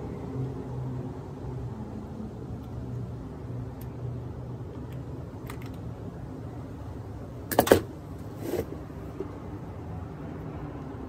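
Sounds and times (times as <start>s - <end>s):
soft scrape: 8.2s - 9.3s.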